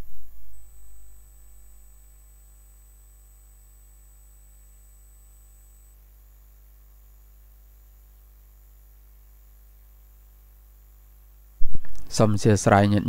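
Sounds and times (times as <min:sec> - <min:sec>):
faint electrical hum: 0:00.0 - 0:13.0
thin high whine: 0:00.0 - 0:13.0.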